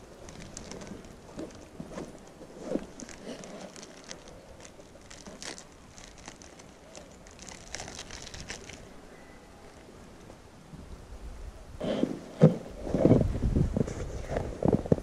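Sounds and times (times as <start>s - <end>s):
packet crinkling and rustling: 0.0s - 9.0s.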